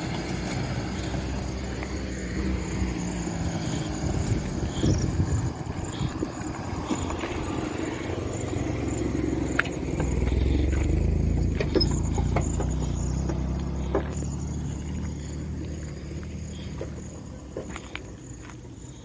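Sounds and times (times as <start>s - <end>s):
vehicle engine rumbling: 0.0s - 19.0s.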